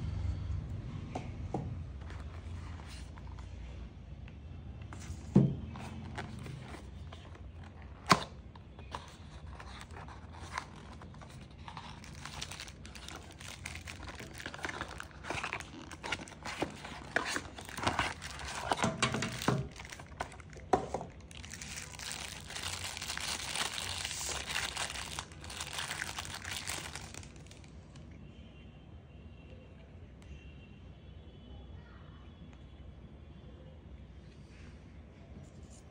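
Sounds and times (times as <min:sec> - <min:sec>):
plastic wrapping crinkling: 0:05.7 - 0:27.7.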